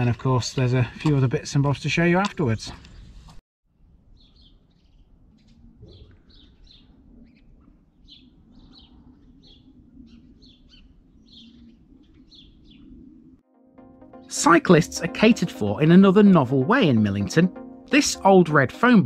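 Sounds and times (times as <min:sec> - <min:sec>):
small birds chirping: 0:02.5 - 0:03.3, 0:04.0 - 0:13.4.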